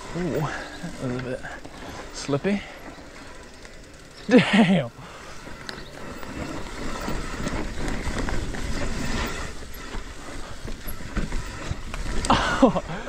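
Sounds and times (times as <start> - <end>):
bike rattling over bumps: 0.0 - 13.0
bike tyres rolling over dirt: 0.0 - 13.0
wind noise on microphone: 5.9 - 13.0.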